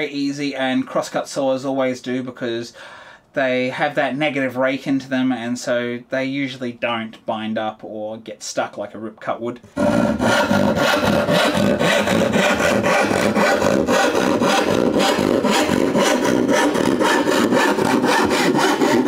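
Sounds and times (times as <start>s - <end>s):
hand saw cutting wood: 9.8s - 19.0s.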